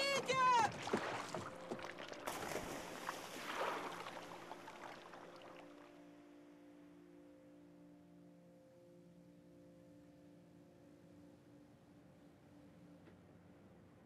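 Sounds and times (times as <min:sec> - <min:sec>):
water splashing around boat: 0:00.1 - 0:05.9.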